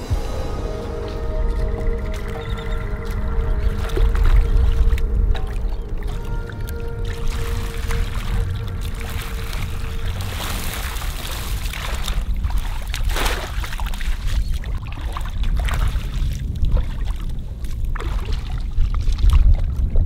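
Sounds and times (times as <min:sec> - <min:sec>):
steady low rumble: 0:00.0 - 0:20.0
water splashing and sloshing: 0:00.0 - 0:20.0.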